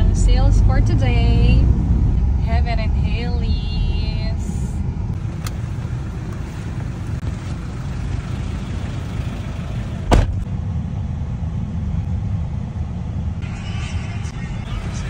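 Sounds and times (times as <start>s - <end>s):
car driving rumble: 0.0s - 15.0s
sharp thump: 10.0s - 10.5s.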